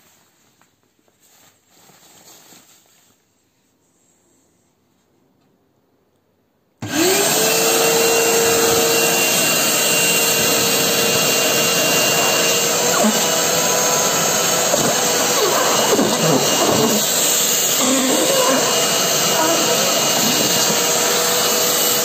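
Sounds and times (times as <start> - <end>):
shop vac motor whine: 6.8 - 22.0.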